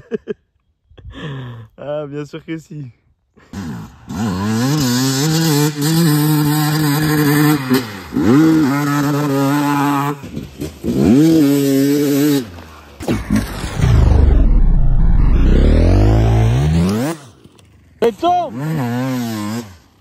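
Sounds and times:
motorcycle engine revving: 3.6 - 17.5, 18.4 - 20.0.

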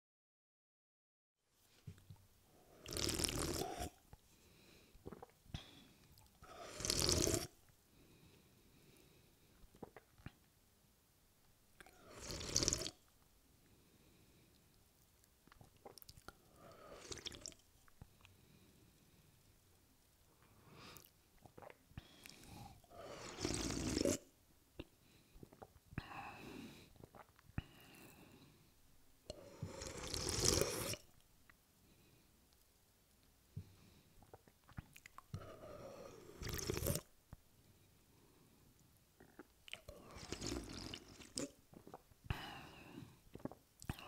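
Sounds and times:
person slurping a drink: 2.7 - 4.0, 5.1 - 5.3, 6.4 - 7.6, 9.8 - 10.3, 11.8 - 13.0, 15.7 - 17.6, 21.0 - 24.3, 27.0 - 28.1, 29.3 - 31.1, 34.2 - 37.1, 39.2 - 42.0, 43.3 - 44.0
wet lip clicks: 34.2 - 35.4.

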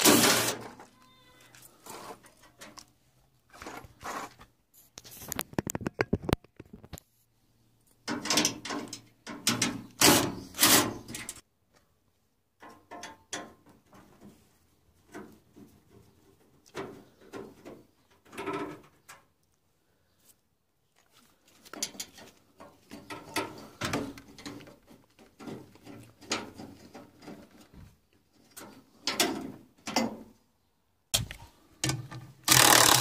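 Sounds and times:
metal panel clattering and scraping: 0.0 - 0.8, 8.1 - 11.4, 21.8 - 30.2
sharp clicks: 32.5 - 33.0.

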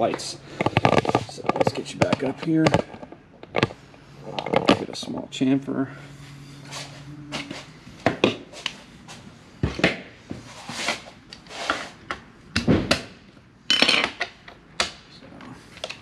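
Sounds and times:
rubbing and scraping: 0.1 - 5.0, 10.4 - 12.0.

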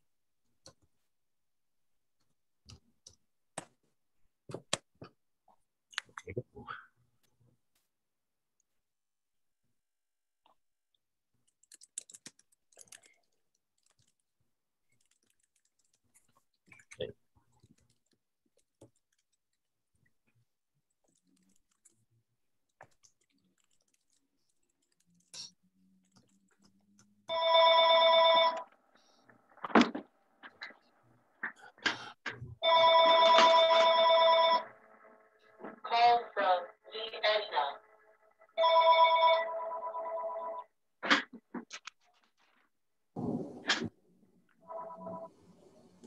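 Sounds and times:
electronic ringing tone: 27.3 - 28.7, 32.6 - 34.8, 38.5 - 40.7, 44.6 - 45.3.

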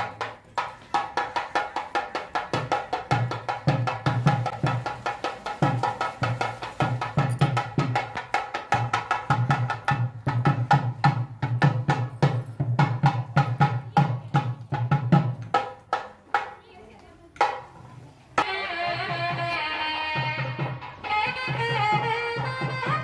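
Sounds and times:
barrel drum fast rhythm: 0.0 - 16.5.

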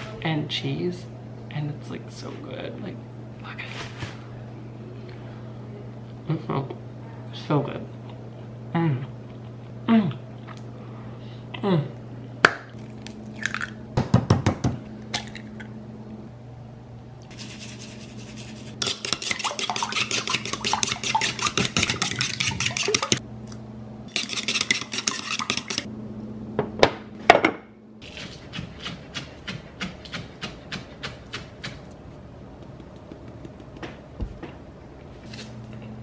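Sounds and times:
low steady hum: 0.0 - 36.0
chopsticks beating eggs in bowl: 17.3 - 23.2, 24.1 - 25.9, 28.0 - 32.0, 32.6 - 33.9.

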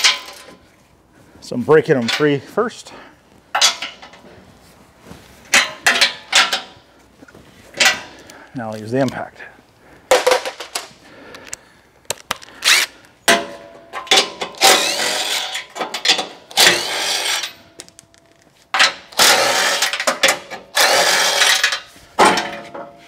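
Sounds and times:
impact driver spinning nuts: 12.6 - 12.9, 14.4 - 17.6, 19.1 - 21.8.

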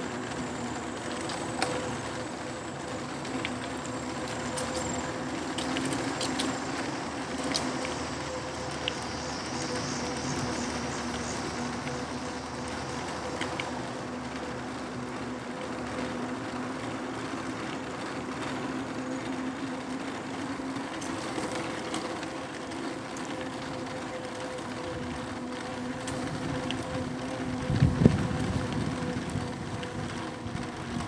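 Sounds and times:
electric motor hum: 0.0 - 31.0
tyre and wind noise: 26.0 - 31.0.

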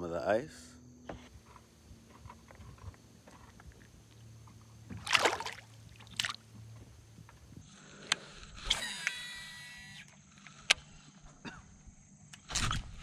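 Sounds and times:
fish splashing in water: 4.9 - 6.5.

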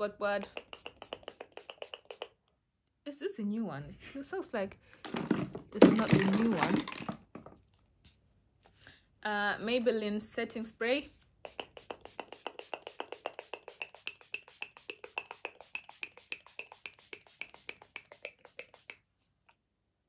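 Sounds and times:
pump mister spritzing: 0.4 - 2.4, 11.4 - 19.1.

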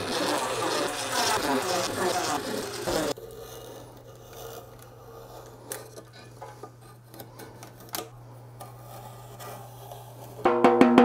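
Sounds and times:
screwdriver scraping and rubbing: 0.0 - 7.9.

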